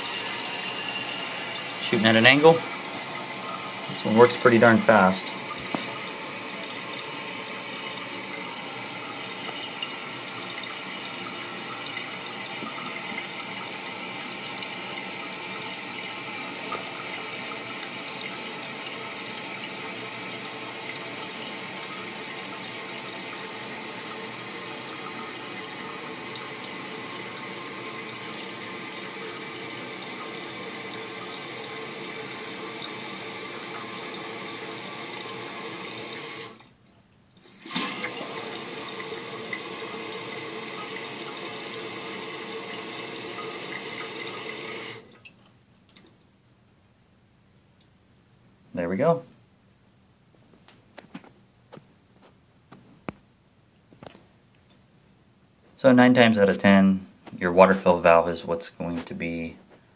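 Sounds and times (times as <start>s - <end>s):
toilet tank refilling: 0.0s - 36.7s, 37.4s - 45.4s
water spraying into tube: 0.0s - 36.7s, 37.4s - 45.1s.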